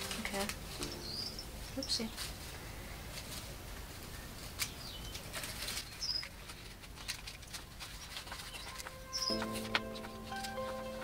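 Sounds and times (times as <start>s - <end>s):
paper liners crinkling: 0.0s - 11.0s
bird chirp: 0.7s - 3.0s, 4.1s - 6.4s, 8.0s - 11.0s.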